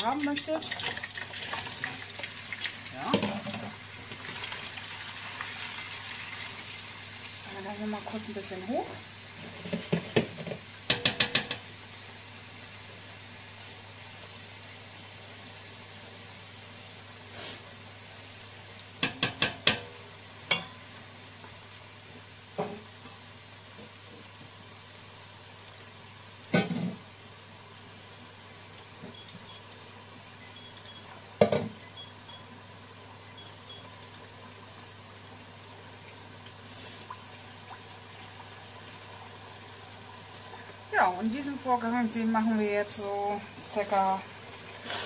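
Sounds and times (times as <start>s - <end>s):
hot oil sizzling: 0.0s - 45.0s
metal skimmer clinking on pot: 20.5s - 20.8s.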